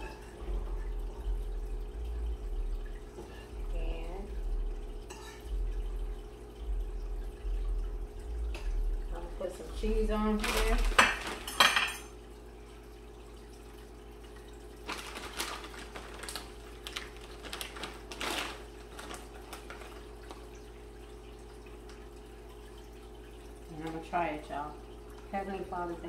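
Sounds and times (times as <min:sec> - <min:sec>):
steady low hum: 0:00.0 - 0:14.8
soft rustling handling noises: 0:14.8 - 0:20.5.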